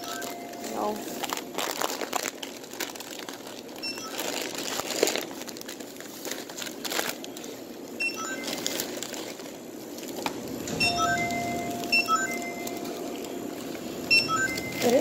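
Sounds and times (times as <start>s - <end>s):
plastic bags crinkling: 0.0s - 15.0s
short electronic beeps: 10.7s - 12.8s, 14.1s - 15.0s.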